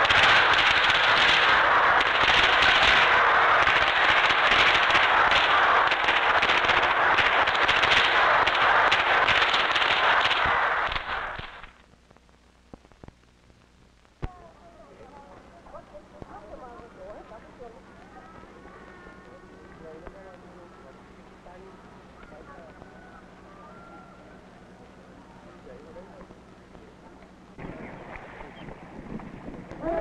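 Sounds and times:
firecrackers crackling: 0.0s - 23.5s.

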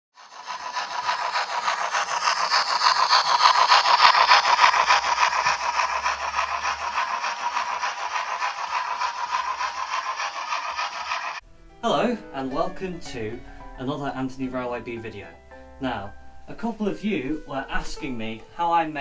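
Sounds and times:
model train wheels rattling on rail: 0.1s - 11.4s.

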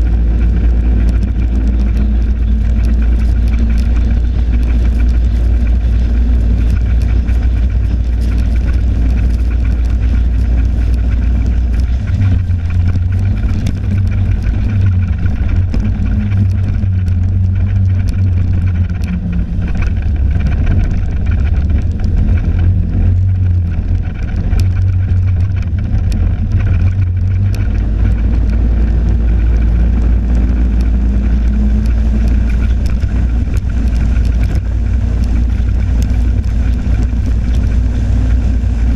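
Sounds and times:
snowmobile engine running: 0.0s - 38.9s.

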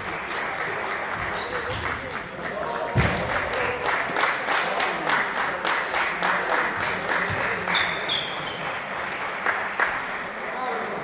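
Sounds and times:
crowd clapping: 0.0s - 11.0s.

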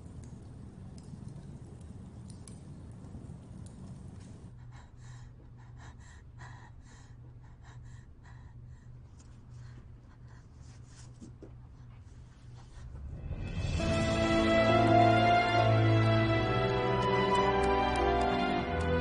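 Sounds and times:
low steady hum: 0.0s - 19.0s
music: 13.0s - 19.0s.

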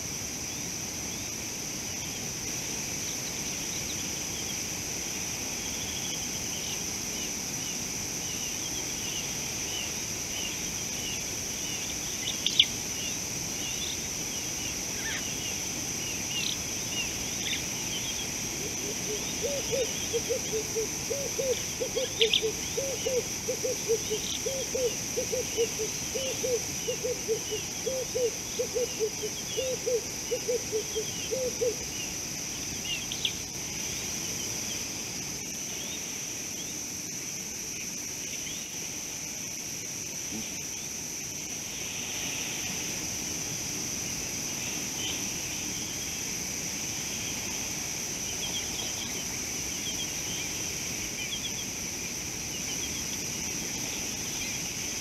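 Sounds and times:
insect drone: 0.0s - 55.0s
small birds chirping: 5.6s - 18.6s.

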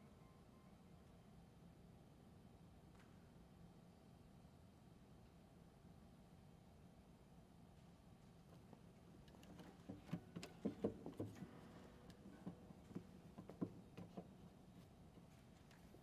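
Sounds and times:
faint clicks and light knocks: 8.2s - 16.0s.

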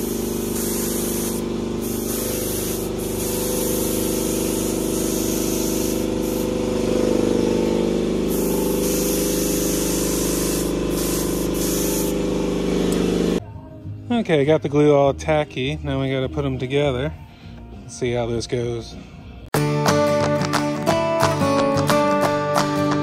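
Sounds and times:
spray gun hissing: 0.0s - 13.4s.

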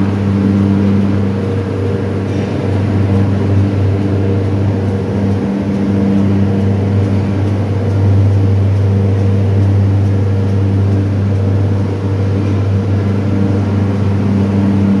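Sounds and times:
mill machinery humming: 0.0s - 15.0s.

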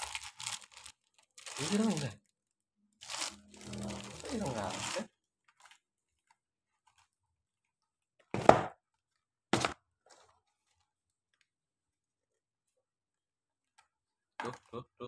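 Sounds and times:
cardboard boxes knocking: 8.3s - 8.8s.

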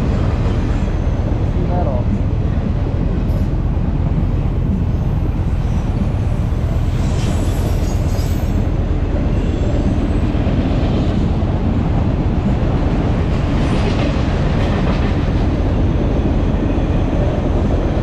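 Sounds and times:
train wheels rumbling on rails: 0.0s - 18.0s
train wheels squealing: 5.6s - 8.7s.

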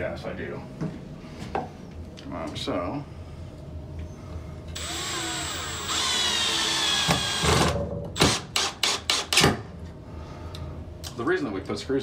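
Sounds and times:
cordless drill whirring: 4.8s - 9.3s.

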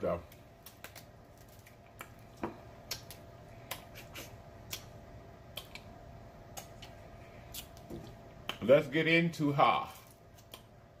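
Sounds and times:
crab shell cracking: 0.3s - 2.2s, 2.8s - 4.0s.

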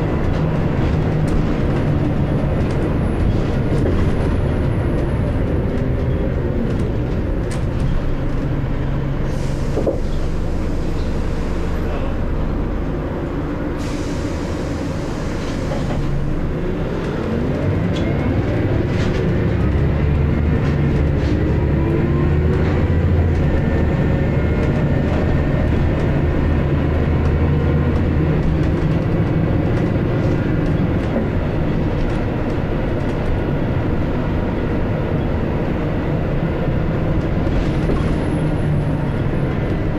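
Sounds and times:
bus diesel engine: 0.0s - 39.9s
road noise: 0.0s - 39.9s.

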